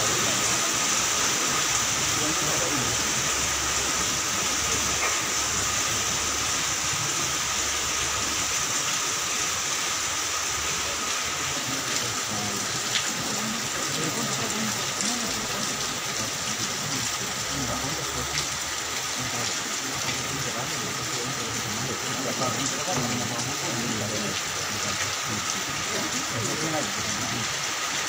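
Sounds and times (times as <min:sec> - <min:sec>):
steady rain: 0:00.0 - 0:28.0
faint indistinct voices: 0:10.4 - 0:27.8.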